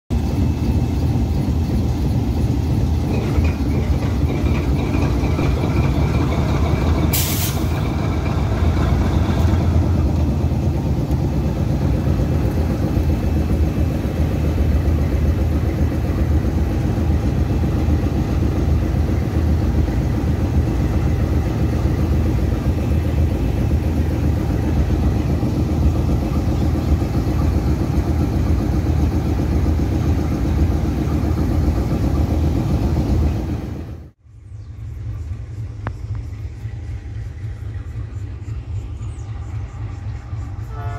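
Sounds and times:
locomotive engine rumble: 0.1 - 40.9
air hiss burst: 7.1 - 7.8.

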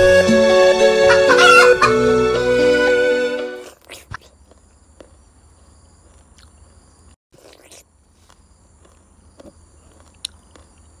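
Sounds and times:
high insect hum: 4.2 - 7.2.

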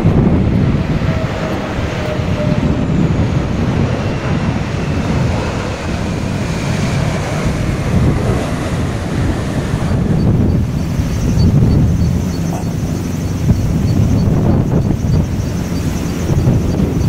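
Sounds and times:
jet airliner engine on runway: 0.0 - 17.0
wind buffeting microphone: 0.0 - 17.0
faint high whine: 9.8 - 17.0.

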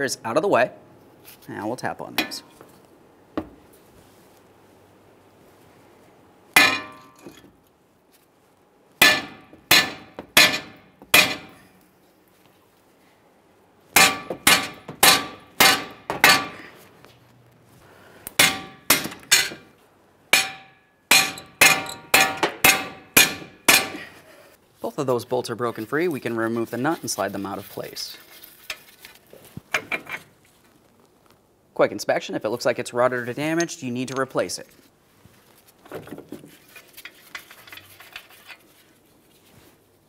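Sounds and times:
hammer striking steel bolts: 2.2 - 2.5, 6.6 - 7.5, 9.0 - 11.7, 14.0 - 16.7, 18.4 - 19.7, 20.4 - 24.1.

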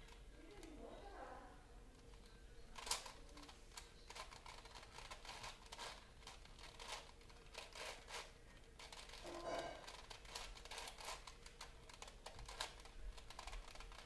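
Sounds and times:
puzzle cube rattle: 2.8 - 14.0
puzzle cube layers clicking: 9.9 - 14.0.

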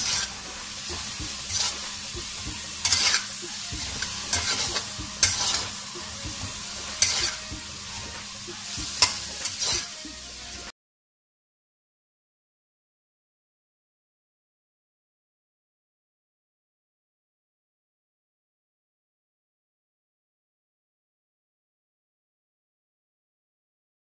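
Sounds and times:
chicken and onion sizzling: 0.0 - 10.7
metal spatula scraping a pan: 0.0 - 10.7.

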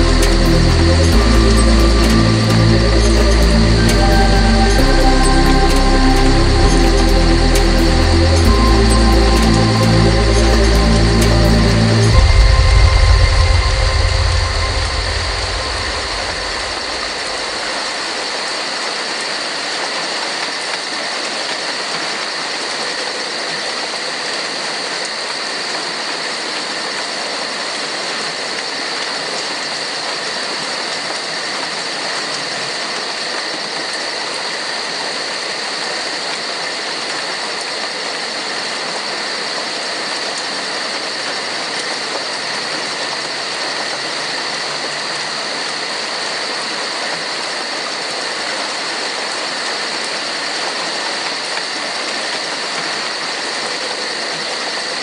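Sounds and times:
high-pitched ringing: 0.0 - 17.8
heavy rainfall: 0.0 - 55.0.

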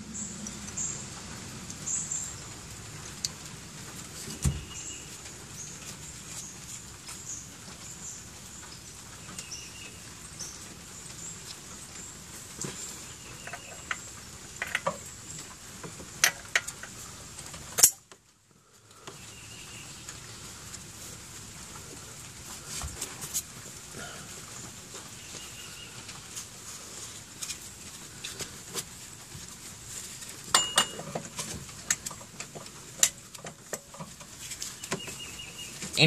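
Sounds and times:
metal clink: 30.5 - 31.1.

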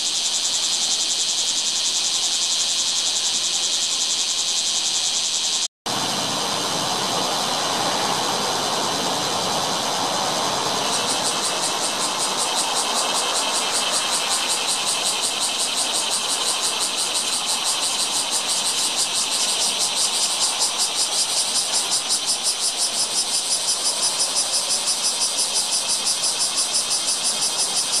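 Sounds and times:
cicada buzzing: 0.0 - 28.0.

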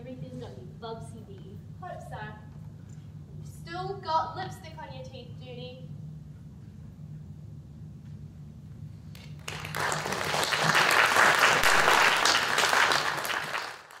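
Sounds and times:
low steady hum: 0.0 - 14.0
audience applause: 9.4 - 14.0.

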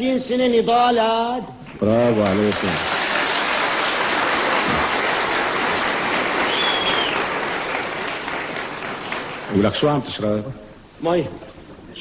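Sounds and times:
audience applause: 1.8 - 9.9.

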